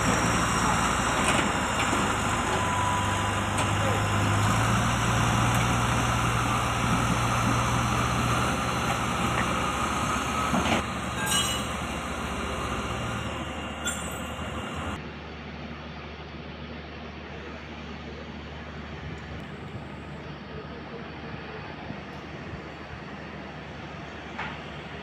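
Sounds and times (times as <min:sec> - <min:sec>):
engine drone: 0:00.0 - 0:16.6.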